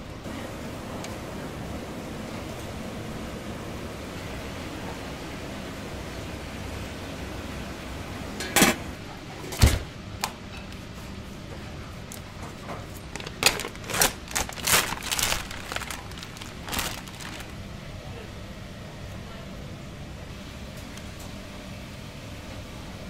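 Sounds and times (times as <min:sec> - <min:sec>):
clicking and crinkling: 0:12.1 - 0:17.6.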